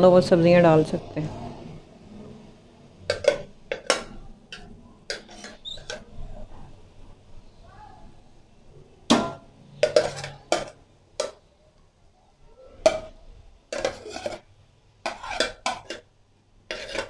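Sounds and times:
metal utensils clinking on pot: 0:03.1 - 0:06.1, 0:09.1 - 0:11.4, 0:12.8 - 0:14.5, 0:15.1 - 0:16.1, 0:16.7 - 0:17.0.

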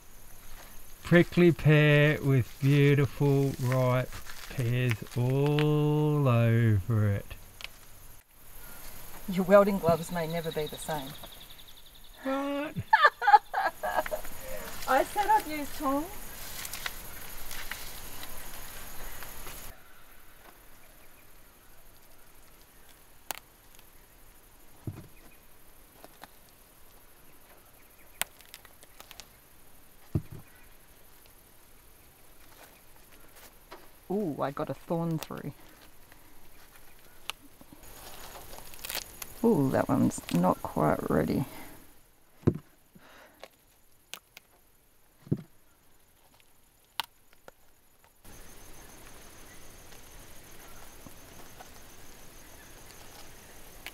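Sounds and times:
background hiss: 0:00.0 - 0:53.9
faint outdoor hush: 0:00.0 - 0:53.9
insect trill: 0:00.0 - 0:53.9
dull knocks: 0:24.8 - 0:25.2, 0:42.4 - 0:42.7
dull thump: 0:24.8 - 0:25.3, 0:30.1 - 0:30.6, 0:42.4 - 0:42.7, 0:45.2 - 0:45.5.

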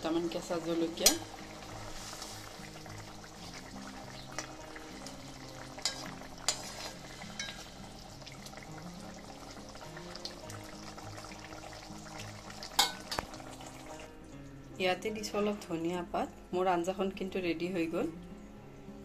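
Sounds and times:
curry simmering sizzle: 0:00.0 - 0:16.4
spatula clinking against pan: 0:01.0 - 0:01.3, 0:07.4 - 0:07.6, 0:12.8 - 0:13.2.

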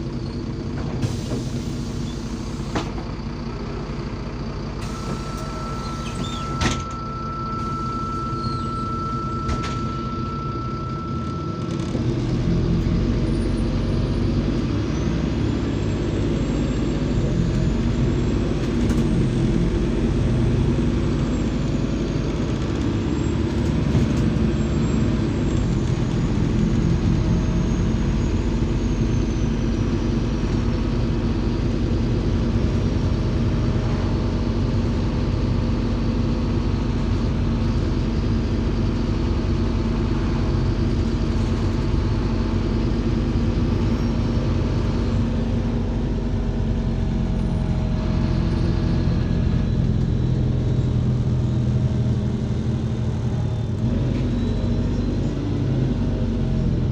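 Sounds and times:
bus diesel engine drone: 0:00.0 - 0:56.9
road noise: 0:00.0 - 0:56.9.

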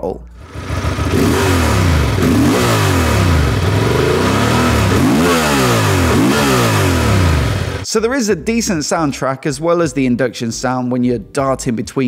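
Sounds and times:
motorcycle engine revving: 0:00.4 - 0:07.8.

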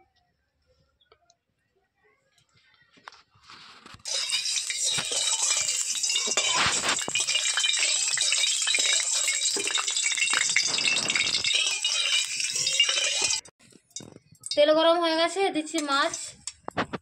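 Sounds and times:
metal spatula scraping: 0:03.5 - 0:14.6, 0:15.7 - 0:17.0
oil crackling and sizzling: 0:03.5 - 0:14.7, 0:15.6 - 0:17.0.

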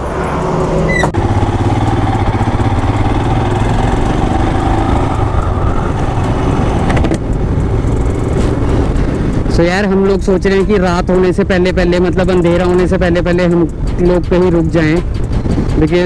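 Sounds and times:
road and wind noise: 0:00.0 - 0:16.0
motorcycle engine running: 0:00.4 - 0:16.0.

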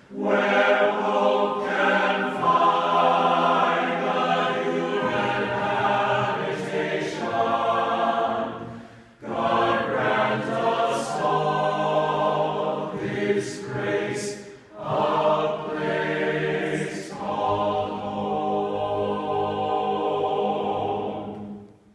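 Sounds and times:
vocal ensemble singing a cappella: 0:00.0 - 0:21.9.

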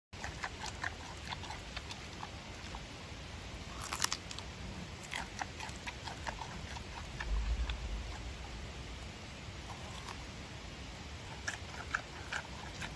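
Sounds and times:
low rumble: 0:06.7 - 0:11.4
panda chewing wetly: 0:11.3 - 0:12.9.

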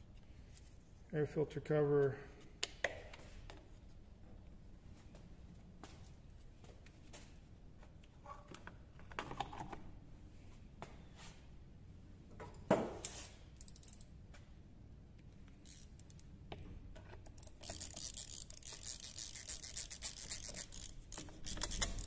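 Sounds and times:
screwdriver turning a screw: 0:17.3 - 0:22.0.

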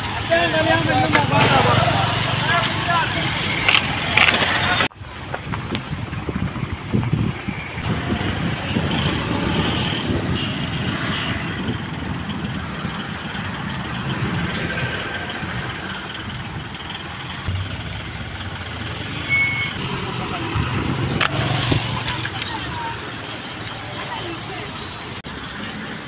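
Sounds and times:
road traffic noise: 0:00.0 - 0:26.0
diesel engine idling: 0:11.6 - 0:25.2.

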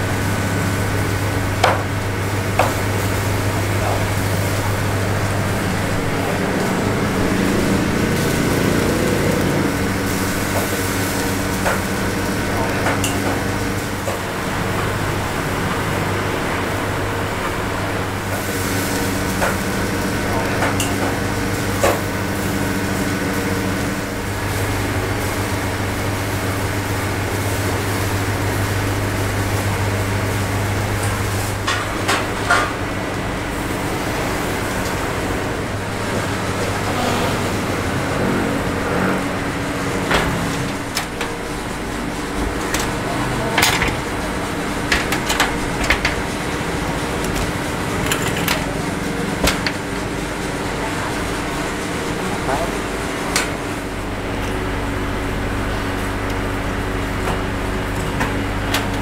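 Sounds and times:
rotisserie mechanical hum: 0:00.0 - 0:59.0
metal clanks from grill baskets: 0:31.0 - 0:32.8, 0:42.5 - 0:50.0.

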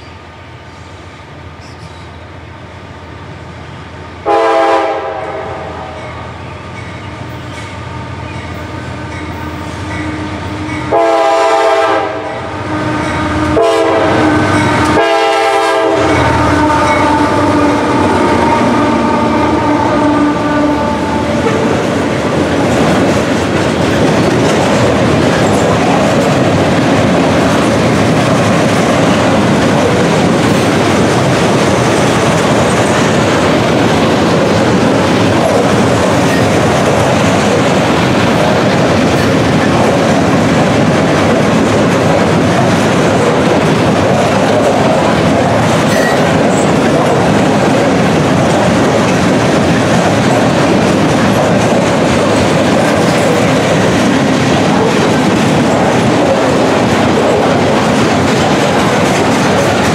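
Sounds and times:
rumble and clack of railcars: 0:00.0 - 0:59.9
diesel locomotive engine running: 0:02.3 - 0:59.9
locomotive horn blasts: 0:04.2 - 0:06.0, 0:08.6 - 0:21.9.

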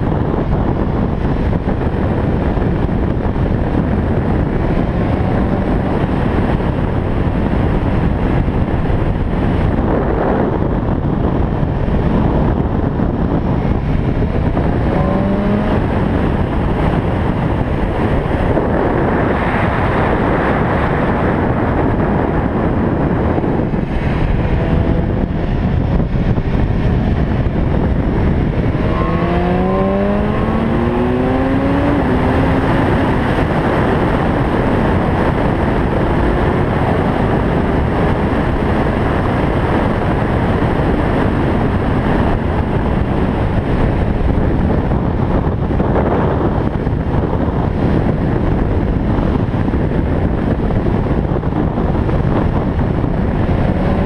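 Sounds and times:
motorcycle engine accelerating: 0:00.0 - 0:54.0
wind buffeting microphone: 0:00.0 - 0:54.0.

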